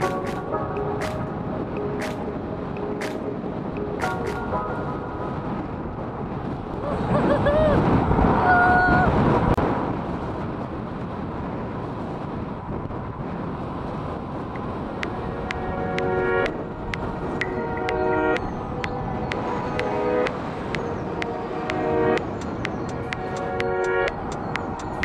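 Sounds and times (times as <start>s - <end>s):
wind buffeting microphone: 0.0s - 25.0s
two-note whine: 14.9s - 25.0s.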